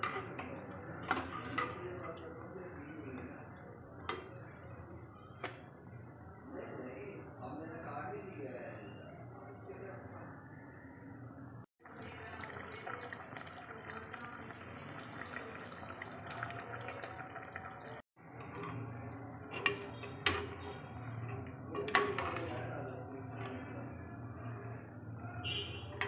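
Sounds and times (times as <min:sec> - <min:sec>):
metal ladle clinking on pot: 0:00.0 - 0:02.4, 0:18.4 - 0:23.8
curry bubbling in a pot: 0:00.0 - 0:05.6, 0:11.8 - 0:26.0.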